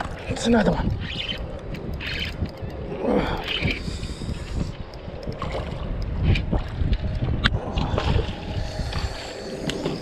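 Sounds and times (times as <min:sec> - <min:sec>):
wind buffeting microphone: 0:00.0 - 0:10.0
sharp clicks: 0:00.7 - 0:02.8.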